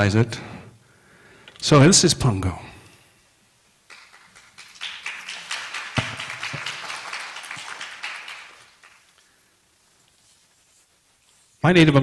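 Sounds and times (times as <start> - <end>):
audience applauding: 3.9 - 9.3.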